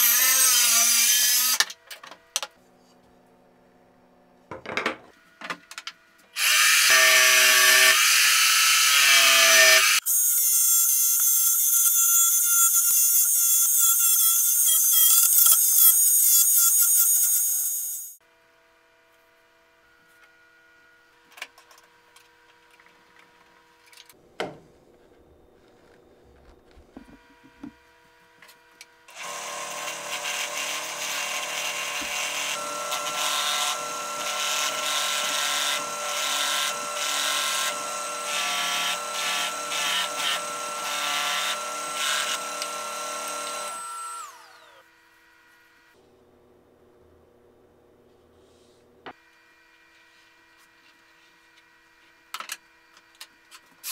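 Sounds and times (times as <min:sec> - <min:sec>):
drill press motor whine: 0:29.1 - 0:44.9.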